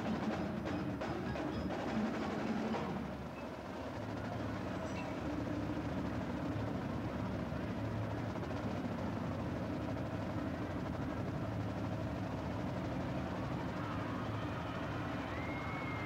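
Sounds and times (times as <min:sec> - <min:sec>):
marching drumline playing: 0:00.0 - 0:03.4.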